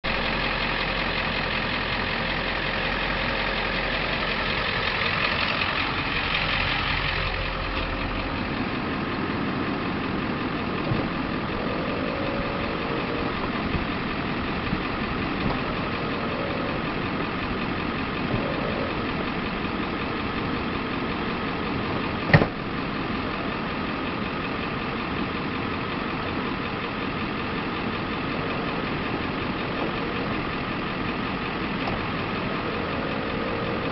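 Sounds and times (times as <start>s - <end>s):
extra hum: 0.0s - 24.0s
truck engine idling: 0.0s - 33.9s.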